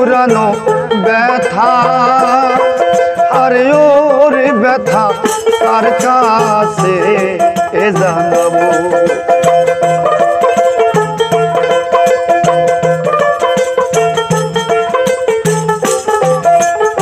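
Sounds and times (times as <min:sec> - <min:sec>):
melody of held notes: 0:00.0 - 0:17.0
tambourine struck and shaken: 0:05.1 - 0:17.0.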